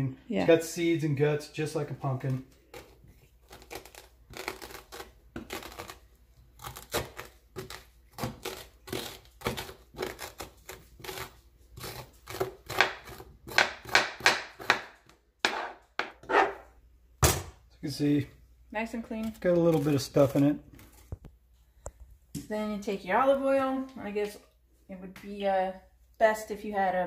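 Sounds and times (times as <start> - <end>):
metal spoon scraping squash: 6.6 - 14.0, 15.4 - 16.8.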